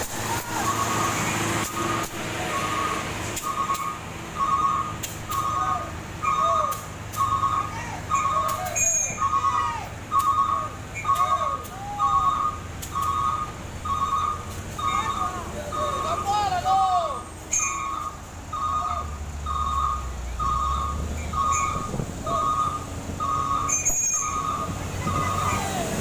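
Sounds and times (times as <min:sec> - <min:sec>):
diesel engine running: 0:00.0 - 0:26.0
truck reversing alarm beeping: 0:00.0 - 0:26.0
short rising and falling whistles: 0:00.4 - 0:15.2, 0:17.5 - 0:25.5.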